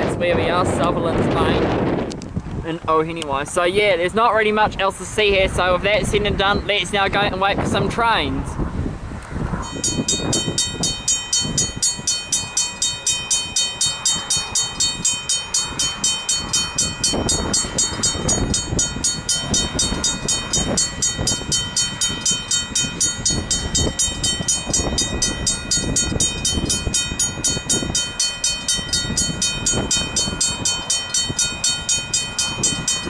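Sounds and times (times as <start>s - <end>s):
level crossing bells ringing: 9.6s - 33.0s.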